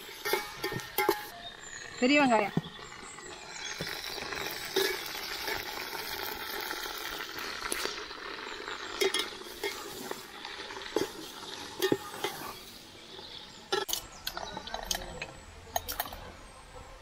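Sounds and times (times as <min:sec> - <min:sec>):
onions sizzling in oil: 0:02.7 - 0:13.9
ladle scraping against pan: 0:10.9 - 0:12.7.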